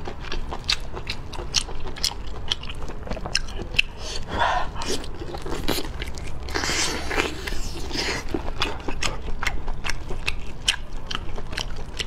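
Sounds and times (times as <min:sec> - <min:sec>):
wet chewing: 0:00.0 - 0:12.0.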